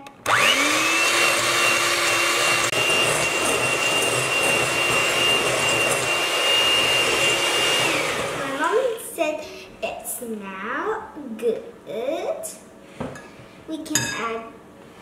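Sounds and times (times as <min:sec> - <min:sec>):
electric hand mixer whining: 0:00.2 - 0:09.0
beaters whirring in batter: 0:00.3 - 0:08.7.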